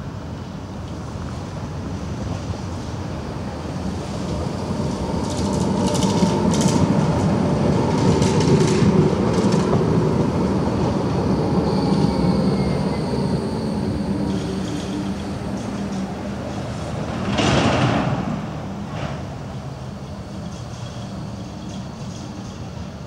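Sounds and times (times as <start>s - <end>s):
thin high tone of tram on curve: 0.0s - 23.0s
tram wheels running on rails: 0.0s - 23.0s
clicking of tram wheels: 3.6s - 13.1s, 14.2s - 23.0s.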